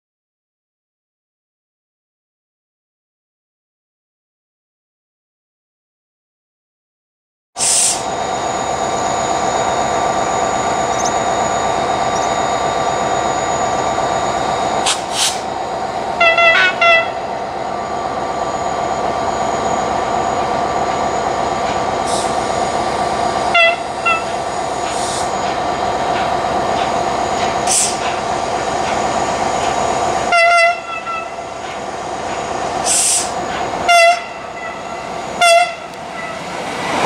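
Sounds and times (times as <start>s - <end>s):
train horn toots: 16.2s - 17.2s, 23.5s - 24.4s, 30.3s - 31.4s, 33.8s - 36.5s.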